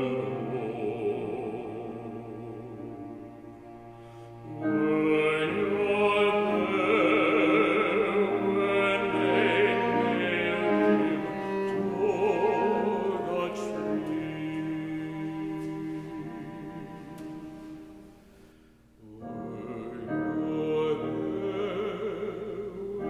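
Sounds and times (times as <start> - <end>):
keyboard accompaniment: 0.0 - 23.0.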